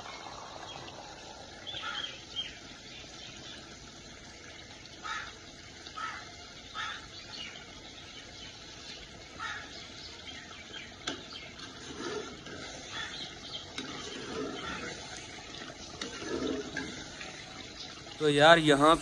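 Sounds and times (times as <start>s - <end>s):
spoon stirring curry in metal pot: 11.0s - 18.0s.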